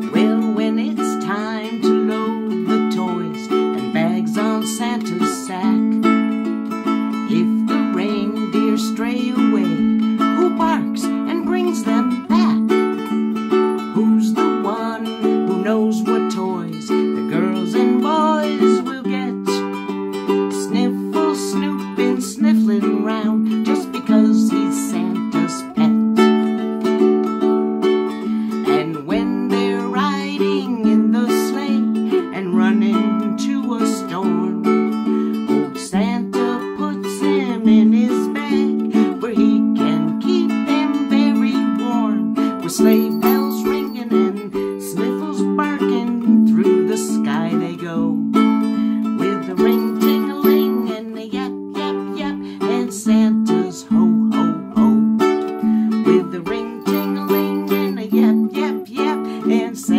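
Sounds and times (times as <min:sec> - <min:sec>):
woman singing: 0:00.0 - 0:06.2, 0:07.2 - 0:19.8, 0:20.4 - 0:27.1, 0:28.5 - 0:59.9
ukulele strumming: 0:00.0 - 0:59.9.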